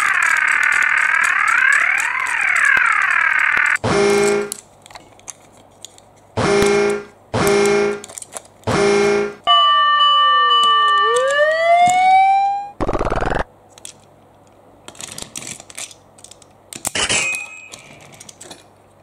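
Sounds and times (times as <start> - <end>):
toy siren wailing: 0.0 - 3.8, 9.5 - 13.4
toy horn honks: 6.4 - 8.0, 8.7 - 9.6.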